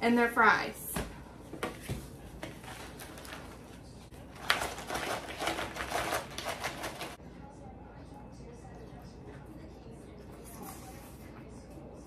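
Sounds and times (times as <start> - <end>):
packaging rustling and crinkling: 4.4 - 7.2.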